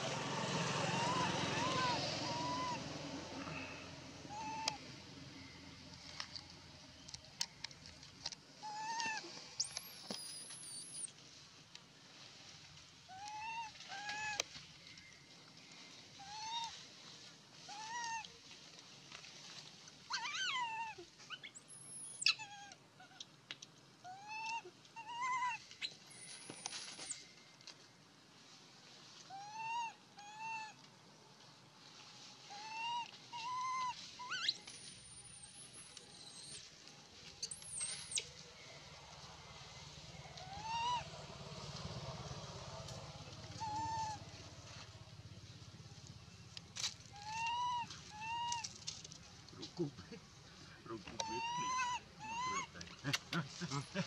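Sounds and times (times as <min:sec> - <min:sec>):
baby monkey whimpering coos: 0:00.8 - 0:02.9, 0:04.3 - 0:04.8, 0:08.6 - 0:11.1, 0:24.1 - 0:25.6, 0:29.3 - 0:30.8, 0:32.5 - 0:36.6, 0:40.4 - 0:41.0, 0:43.5 - 0:44.2, 0:47.1 - 0:48.6, 0:51.2 - 0:53.2.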